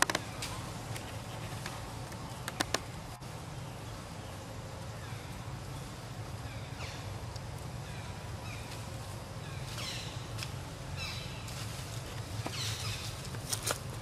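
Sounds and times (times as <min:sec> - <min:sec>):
steady low hum: 0:00.0 - 0:14.0
sharp clicks: 0:01.6 - 0:02.9.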